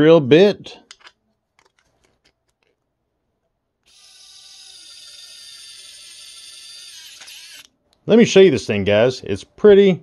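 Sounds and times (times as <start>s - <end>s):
electric screwdriver motor whine: 3.8s - 7.7s.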